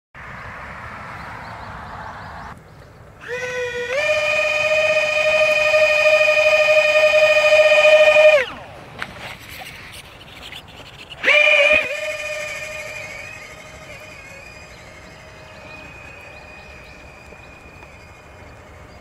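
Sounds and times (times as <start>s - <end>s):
electric fans whining: 1.6s - 19.0s.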